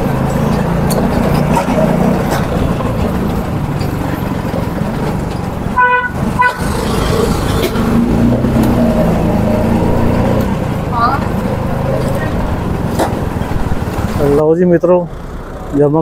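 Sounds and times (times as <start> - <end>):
street traffic engines: 0.0 - 16.0
vehicle horn beeping: 5.7 - 6.7.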